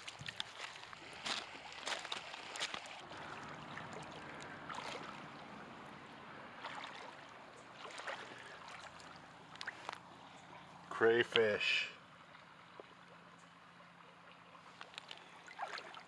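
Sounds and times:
footsteps crunching on gravel: 0.0s - 3.0s
creek water running over stones: 0.0s - 16.0s.

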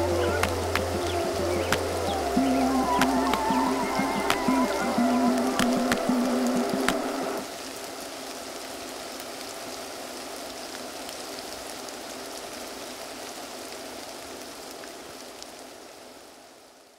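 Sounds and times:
music: 0.0s - 7.4s
faint crackles: 0.0s - 16.1s
steady rain-like hiss: 0.0s - 16.9s.

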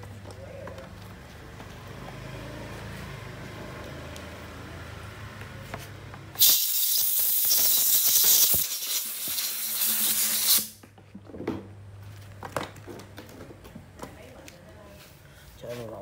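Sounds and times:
compressed air blow gun hissing: 6.4s - 10.8s.

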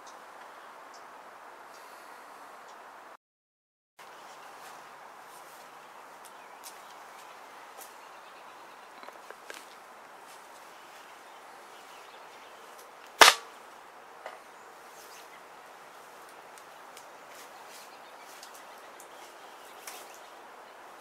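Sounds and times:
loud sharp crack: 13.1s - 13.6s.

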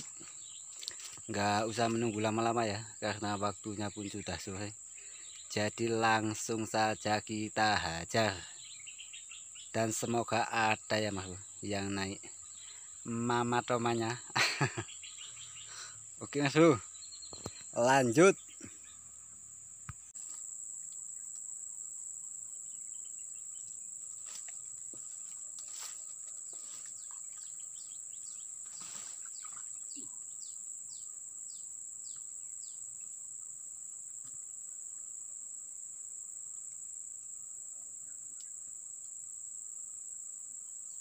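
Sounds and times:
high-pitched insect drone: 0.0s - 41.0s.

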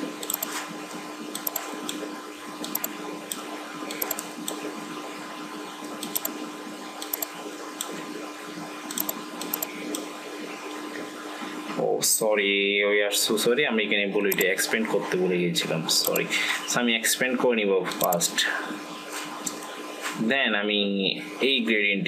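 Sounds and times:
electrical hum and hiss: 0.0s - 22.0s
computer mouse clicking: 0.2s - 0.6s, 1.4s - 2.0s, 2.6s - 4.6s, 6.0s - 6.4s, 7.0s - 8.0s, 8.9s - 10.1s, 16.0s - 16.3s.

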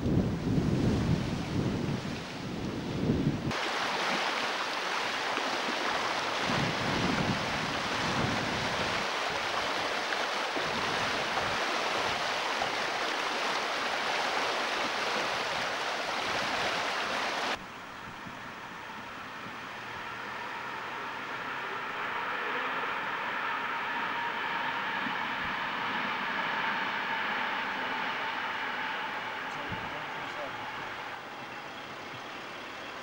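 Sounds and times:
wind buffeting microphone: 0.0s - 3.6s, 5.7s - 13.6s, 21.0s - 32.6s
floodwater rushing: 3.4s - 33.0s.

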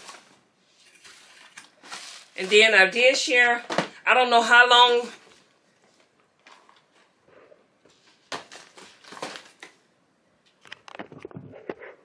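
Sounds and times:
cardboard boxes rustling: 0.0s - 2.7s, 7.9s - 9.7s.

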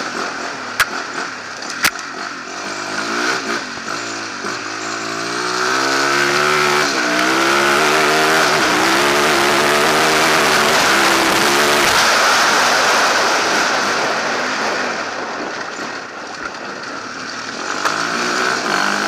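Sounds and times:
motorcycle engine accelerating: 0.0s - 19.0s
rushing noise: 6.4s - 19.0s.

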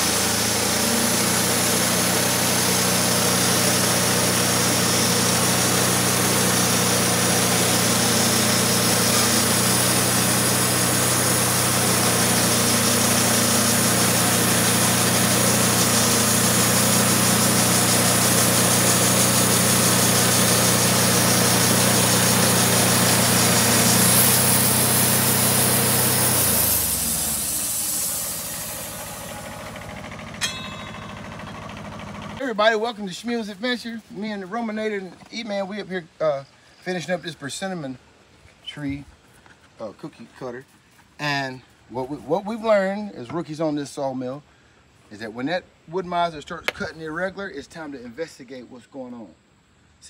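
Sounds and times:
engine shutting off: 0.0s - 35.4s
band sawmill cutting log: 0.0s - 36.1s.

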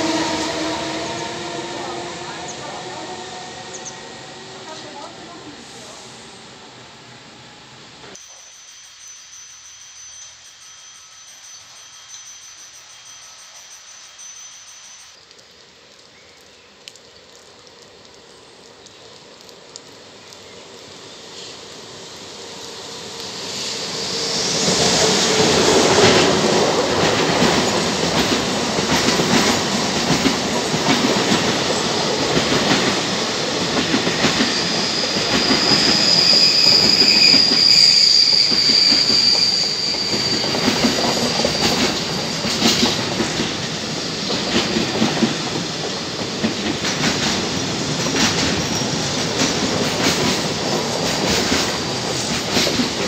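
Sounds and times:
high steady squeal: 0.0s - 5.1s, 7.4s - 15.2s, 21.0s - 44.5s
freight train rumble: 0.0s - 8.2s, 21.0s - 53.0s.

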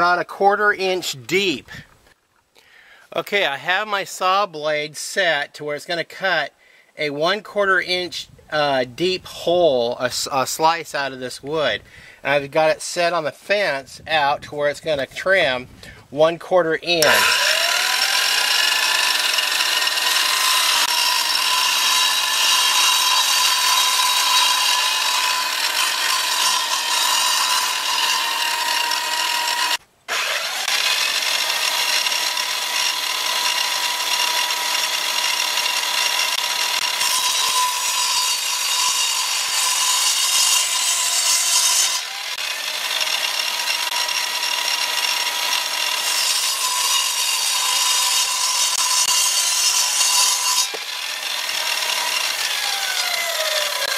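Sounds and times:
saw blade cutting wood: 16.9s - 53.9s
radial arm saw whining: 17.0s - 53.9s.

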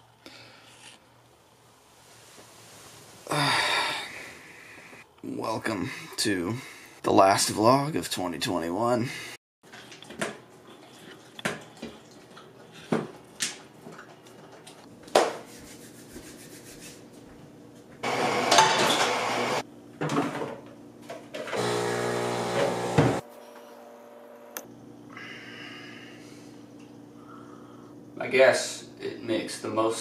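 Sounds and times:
dishes and pans clinking: 18.5s - 19.2s
steady pitched hum: 21.6s - 30.0s.

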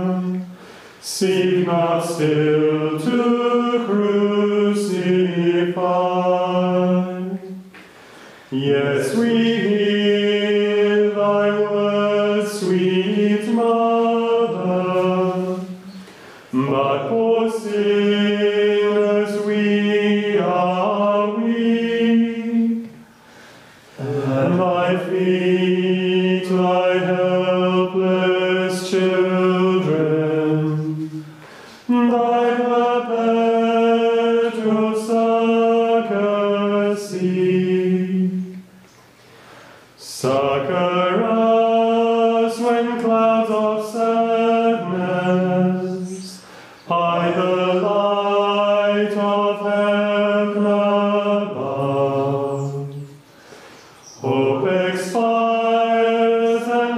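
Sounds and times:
men chanting in unison: 24.0s - 38.5s, 40.1s - 53.0s, 54.2s - 56.9s.

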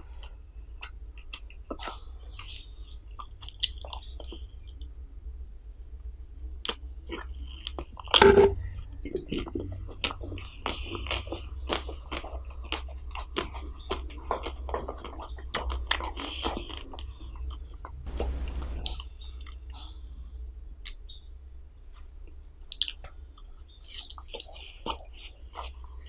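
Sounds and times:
wet chewing and mouth sounds: 0.0s - 5.0s, 6.6s - 18.0s, 22.2s - 26.0s
steady low hum: 0.0s - 26.0s.

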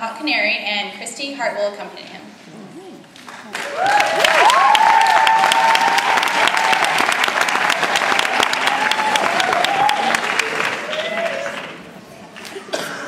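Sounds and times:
audience applauding: 3.2s - 12.6s
audience whooping: 3.5s - 11.9s.

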